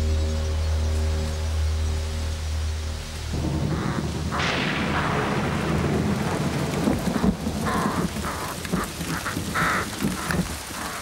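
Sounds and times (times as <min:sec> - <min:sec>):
rain falling: 0:00.0 - 0:11.0
rumbling thunder: 0:03.3 - 0:10.9
crow cawing: 0:03.7 - 0:11.0.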